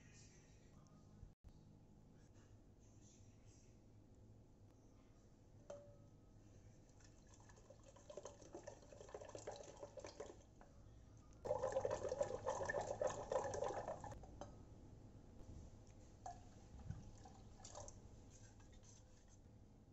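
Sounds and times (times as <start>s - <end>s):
hand churner swishing liquid: 11.5s - 14.2s.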